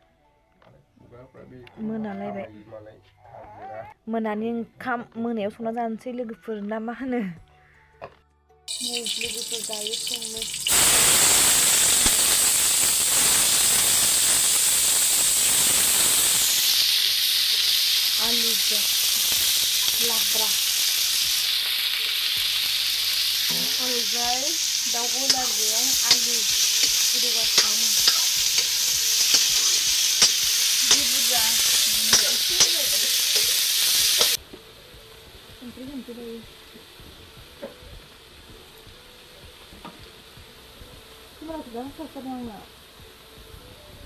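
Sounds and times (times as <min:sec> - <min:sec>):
sharp pops of frying: 0:08.7 - 0:34.4
vegetables sizzling in hot oil: 0:08.7 - 0:43.9.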